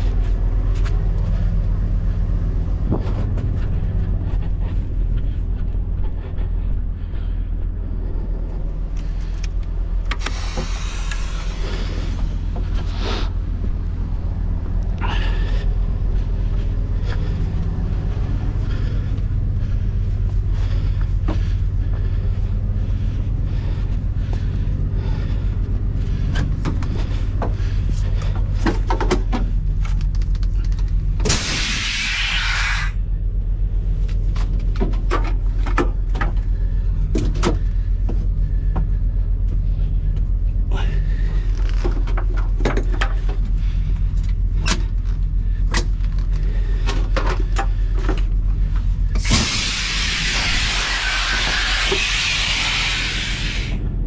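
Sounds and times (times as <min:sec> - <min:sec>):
diesel engine running: 0:00.0 - 0:54.0
loud air hissing: 0:10.1 - 0:12.2, 0:31.2 - 0:33.0, 0:49.2 - 0:53.8.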